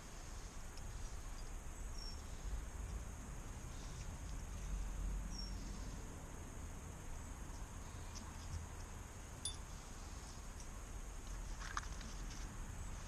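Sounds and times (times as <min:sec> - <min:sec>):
light clicks of metal parts: 0:00.6 - 0:05.5, 0:07.4 - 0:09.7, 0:10.4 - 0:12.6.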